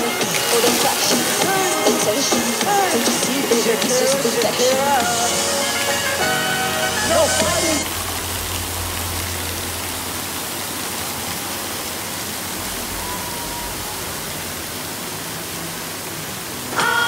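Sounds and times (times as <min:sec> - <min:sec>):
water rushing and splashing: 0:00.0 - 0:17.0.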